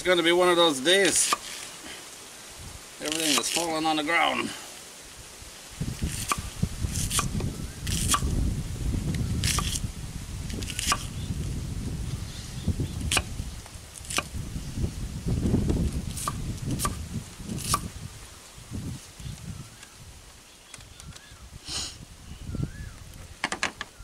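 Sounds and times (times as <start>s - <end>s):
knife chopping on wooden board: 10.8s - 11.1s.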